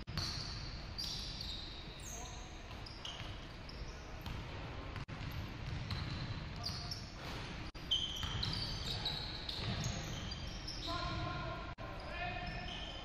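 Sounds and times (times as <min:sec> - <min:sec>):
sneaker squeaks on floor: 0:00.1 - 0:04.5, 0:05.2 - 0:11.4, 0:12.0 - 0:13.0
basketball dribbling: 0:05.0 - 0:06.2.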